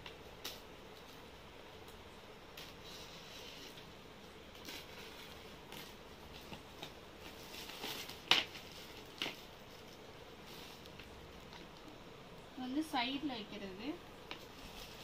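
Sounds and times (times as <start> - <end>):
plastic wrapping rustling: 2.5 - 12.0, 13.0 - 15.0.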